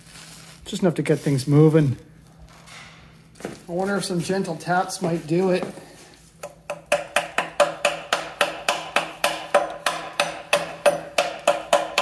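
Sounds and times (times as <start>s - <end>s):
mallet tapping on metal pulley: 6.4s - 12.0s.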